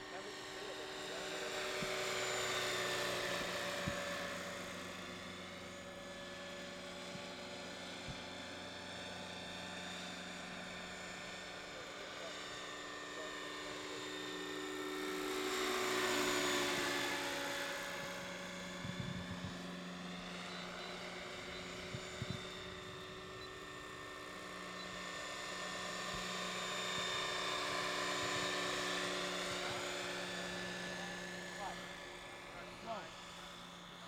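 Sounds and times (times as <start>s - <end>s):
model helicopter whine and rotor hum: 0.0s - 34.0s.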